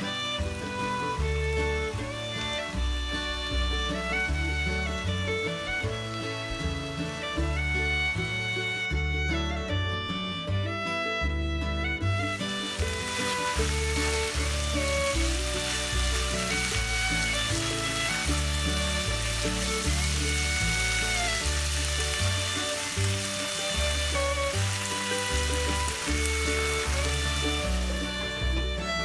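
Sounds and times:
background music: 0.0 - 29.0
meat sizzling in a frying pan: 12.4 - 28.2.

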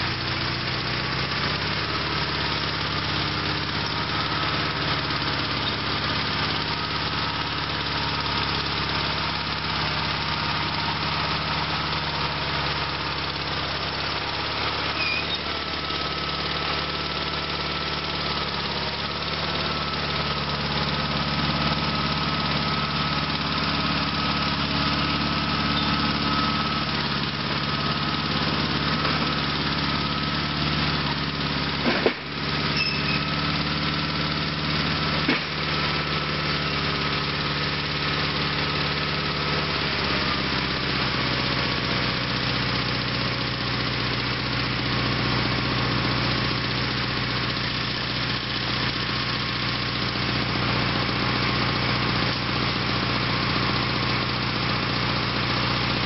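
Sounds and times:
tractor engine running: 0.0 - 56.0
blade pushing dirt: 18.0 - 33.6, 34.8 - 37.2.

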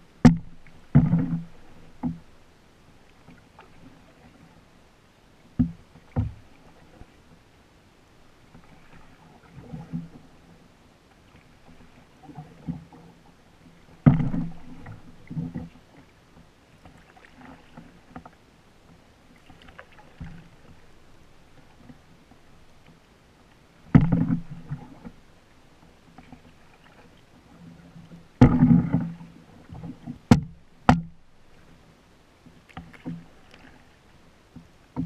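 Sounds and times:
paddle swishing in water: 0.0 - 7.5, 8.3 - 35.0
paddle knocking canoe hull: 0.2 - 2.4, 5.5 - 7.0, 13.8 - 16.1, 19.4 - 23.0, 23.8 - 25.2, 26.2 - 31.6.

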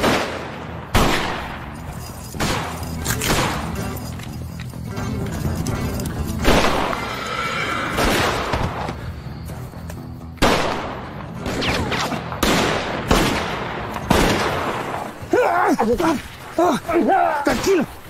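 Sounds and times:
gunshots with ringing tails: 0.0 - 4.0, 6.4 - 7.2, 7.9 - 8.8, 10.4 - 15.1
tense dramatic music: 0.0 - 15.5
horse whinnying: 6.6 - 8.3.

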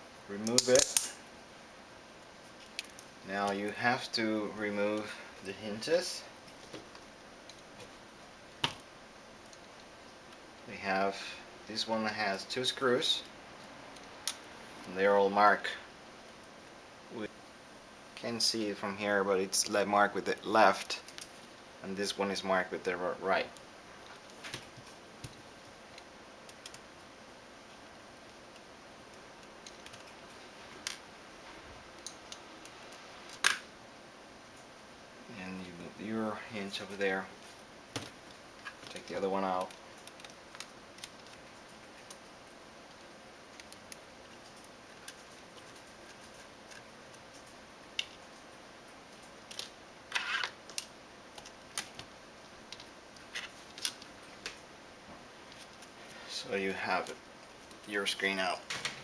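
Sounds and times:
low steady hiss: 0.0 - 59.0
scraping rustle: 49.5 - 50.6.

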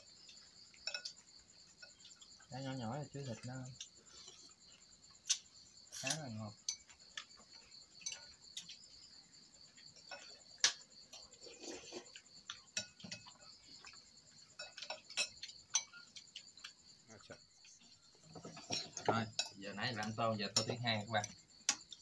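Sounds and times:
night insects chirring: 0.0 - 22.0
utensils clinking on ceramic bowls: 0.8 - 1.2, 5.9 - 7.1, 12.6 - 13.9, 14.6 - 16.4, 17.6 - 21.4.

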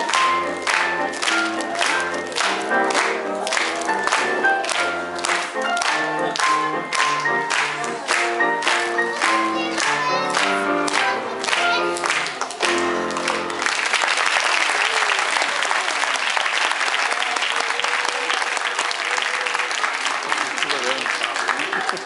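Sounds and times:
grand piano playing: 0.0 - 13.9
audience applause: 0.0 - 22.0.

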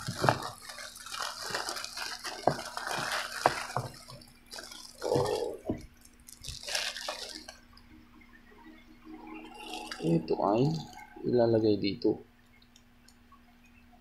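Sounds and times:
plastic bag crinkling: 0.0 - 7.6, 9.5 - 11.0.

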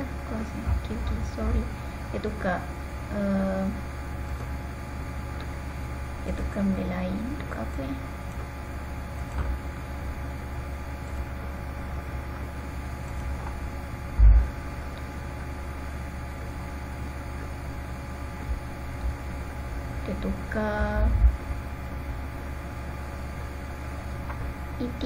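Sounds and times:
low electrical hum: 0.0 - 25.0
dull low thump: 14.2 - 14.6, 21.1 - 21.6.

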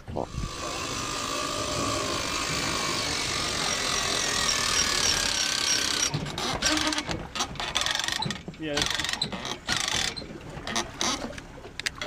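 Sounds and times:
cordless drill motor whine: 0.3 - 6.1
winch gears turning: 0.3 - 12.0.

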